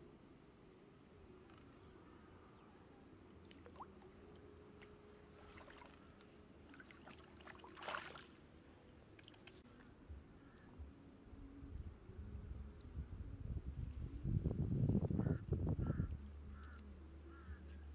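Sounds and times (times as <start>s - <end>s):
shallow water splashing: 3.4s - 9.6s
short splash: 5.4s - 6.1s, 6.7s - 8.4s.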